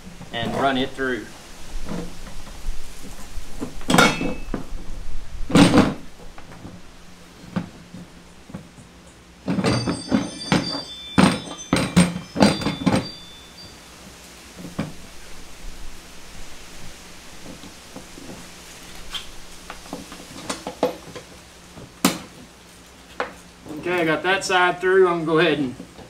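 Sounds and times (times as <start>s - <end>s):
plastic cart parts thunking: 9.5s - 13.2s
light metallic clinks: 9.6s - 14.2s.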